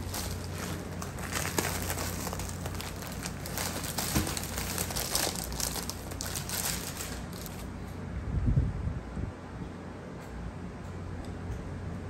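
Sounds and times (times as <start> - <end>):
plastic bag crinkling: 0.0 - 7.7
plastic sleeve rustling: 0.0 - 7.7.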